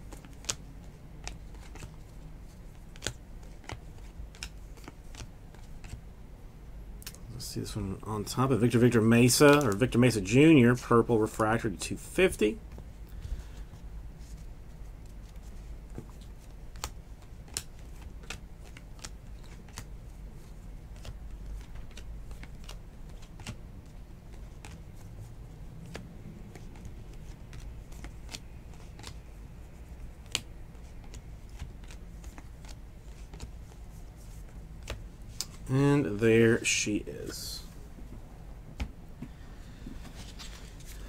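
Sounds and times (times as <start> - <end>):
trading cards flipped by hand: 0.0 - 6.0, 9.4 - 9.9, 12.7 - 25.1, 25.7 - 35.6, 39.9 - 41.0.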